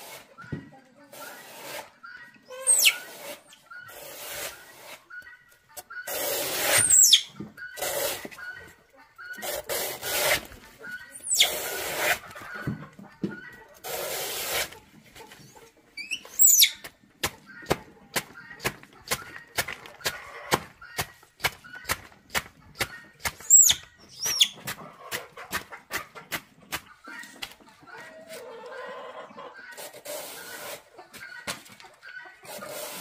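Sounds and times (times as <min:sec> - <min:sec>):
baby monkey squealing: 0:02.5 - 0:03.1, 0:06.8 - 0:07.3, 0:11.2 - 0:11.6, 0:16.0 - 0:16.8, 0:23.5 - 0:24.6.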